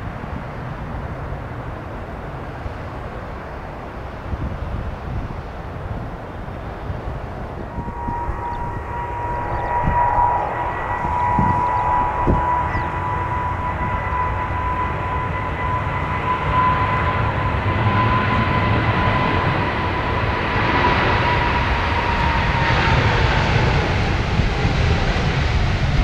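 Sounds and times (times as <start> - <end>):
jet engines high whine: 0.0 - 26.0.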